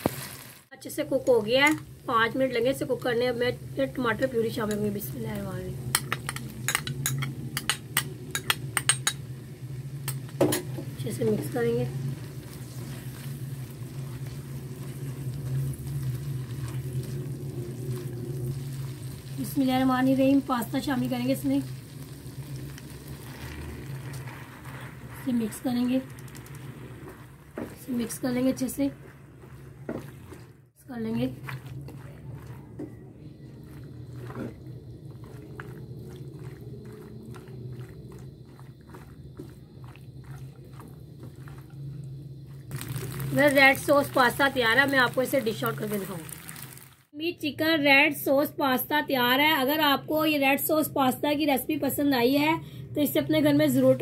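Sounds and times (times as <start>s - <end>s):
food sizzling in oil: 0.0s - 47.2s
steady low hum: 1.0s - 45.4s
spatula scraping a wok: 26.6s - 43.2s.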